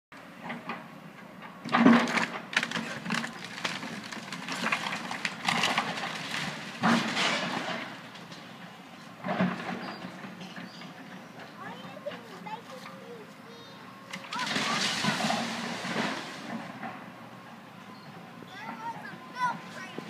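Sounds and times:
excavator engine hum: 0.2 - 20.0
wood and roofing crashing and cracking: 1.6 - 8.5, 14.2 - 17.1.

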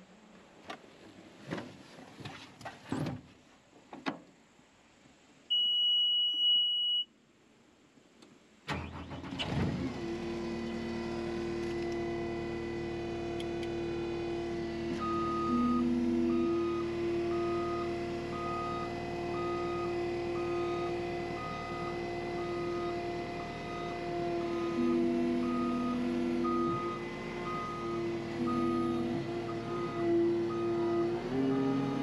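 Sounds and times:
warning beep: 5.5 - 7.1, 15.0 - 23.0, 23.7 - 32.0
engine cranking and running: 8.7 - 15.1
backup alarm beeping: 15.0 - 31.9.

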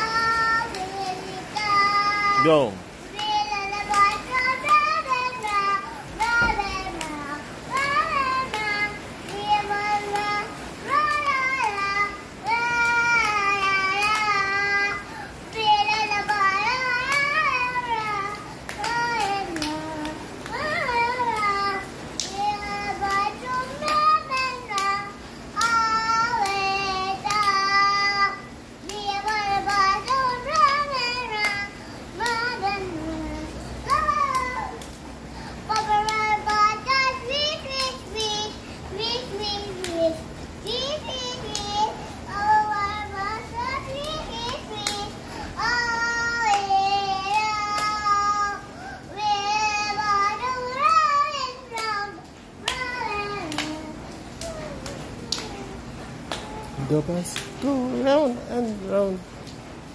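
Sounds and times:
child singing: 0.0 - 35.0, 35.6 - 58.8
hand claps: 0.6 - 2.1, 3.2 - 14.5, 15.5 - 25.0, 25.6 - 28.0, 28.8 - 31.6, 32.2 - 32.7, 33.8 - 35.0, 35.7 - 38.4, 39.4 - 40.0, 40.6 - 41.8, 43.9 - 45.1, 46.4 - 48.2, 51.7 - 52.0, 52.6 - 56.8, 57.4 - 57.6.

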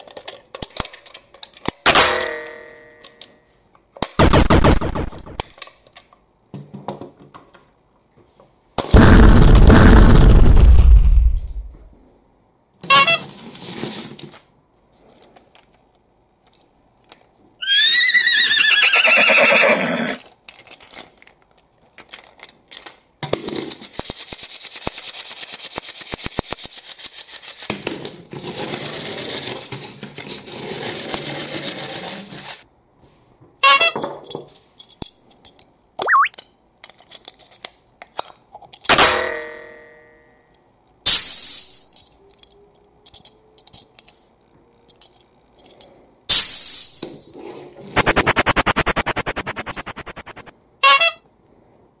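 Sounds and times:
toy train rattling clicks: 23.7 - 27.7, 42.3 - 44.2, 44.9 - 45.9.

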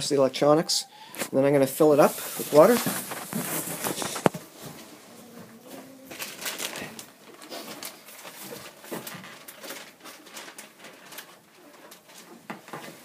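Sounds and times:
rustling in straw: 1.8 - 8.7
chickens clucking and cooing: 4.8 - 6.4.

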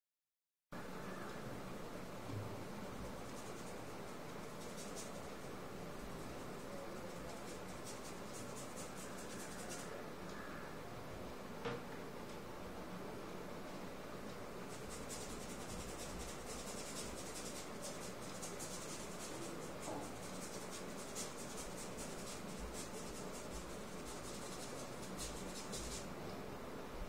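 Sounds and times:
paintbrush scratching: 2.8 - 10.1, 14.6 - 26.1.

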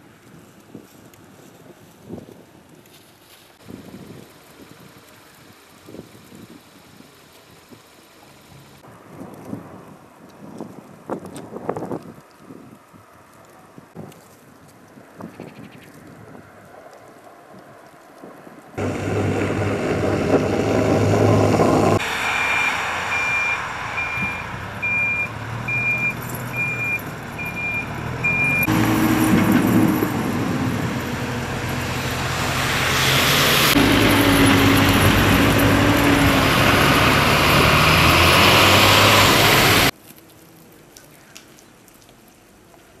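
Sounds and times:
diesel engines under load: 18.8 - 39.9
reversing alarm beeping: 22.0 - 28.8.

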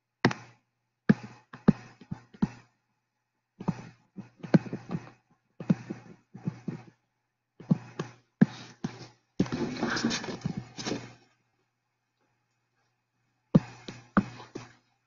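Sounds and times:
pen tapping and scratching on touchscreen: 0.2 - 2.8, 3.6 - 7.0, 7.6 - 11.2, 13.5 - 14.8.

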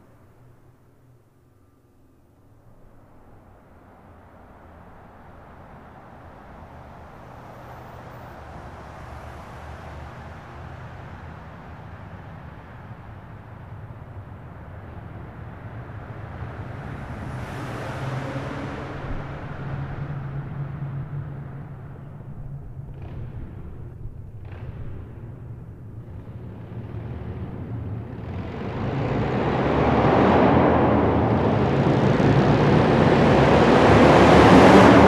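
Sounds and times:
wind and road noise: 0.0 - 35.0
motorcycle engine cruising: 18.0 - 35.0.

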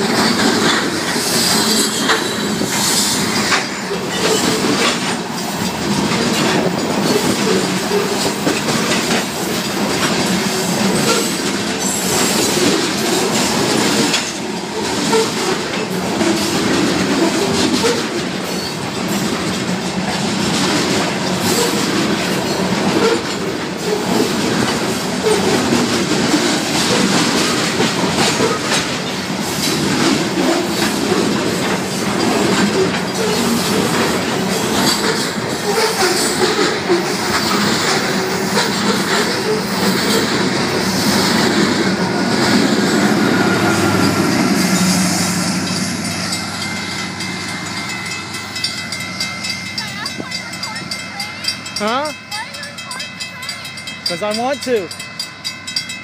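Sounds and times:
freight train rumbling past: 0.0 - 56.0
wheels clacking over rail joints: 0.0 - 56.0
crossing bells ringing: 21.0 - 56.0.

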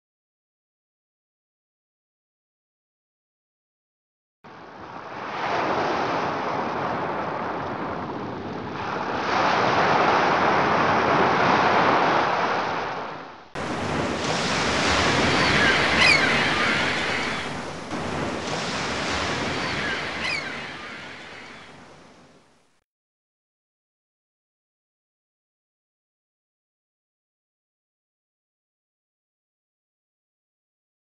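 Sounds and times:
surf breaking on beach: 4.6 - 22.5
short high calls: 15.3 - 17.6, 19.5 - 21.7.

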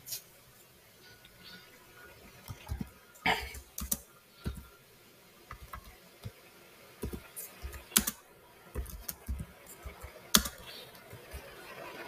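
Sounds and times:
keyboard typing: 2.4 - 4.7, 5.5 - 6.4, 7.0 - 11.8.

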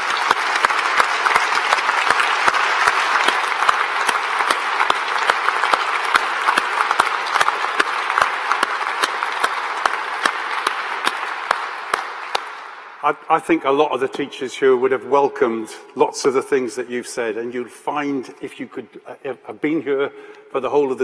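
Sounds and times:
large audience applauding: 0.0 - 13.0
sharp claps close by: 0.0 - 13.0.

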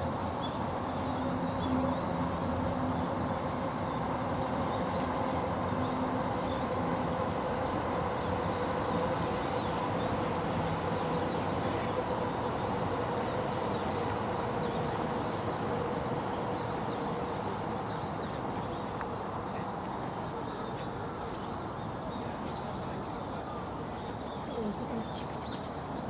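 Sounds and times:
small birds chirping: 23.9 - 26.0.

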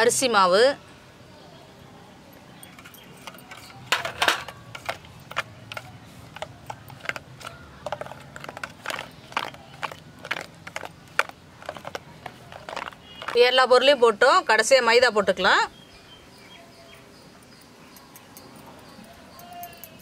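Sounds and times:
spoon clinking against steel bowl: 17.6 - 20.0.

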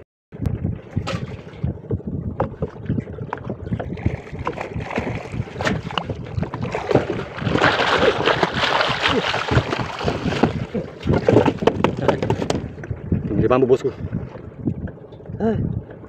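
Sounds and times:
wind on the microphone: 0.3 - 16.0
fish splashing at the surface: 4.5 - 11.6.

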